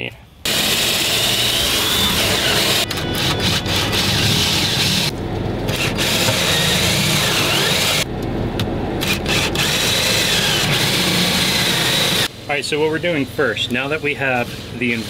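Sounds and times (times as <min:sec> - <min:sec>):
cordless drill boring into wood: 0:00.5 - 0:05.1, 0:05.7 - 0:08.0, 0:09.0 - 0:12.3.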